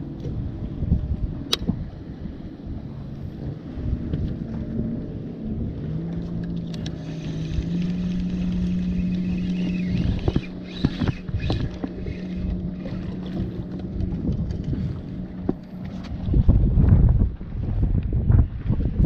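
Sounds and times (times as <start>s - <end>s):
steady low hum: 0.0s - 19.0s
wind buffeting microphone: 0.0s - 19.0s
fishing reel clicks and rattles: 6.4s - 14.7s.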